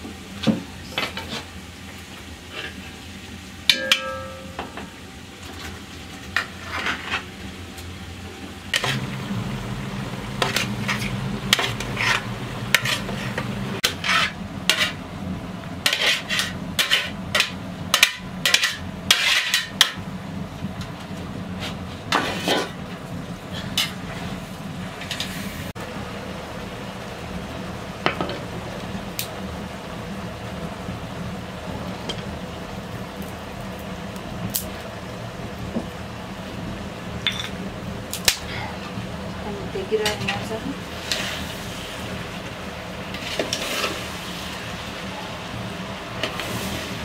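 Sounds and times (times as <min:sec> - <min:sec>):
metal ladle scraping a pot: 0:10.4 - 0:15.0, 0:15.8 - 0:19.7.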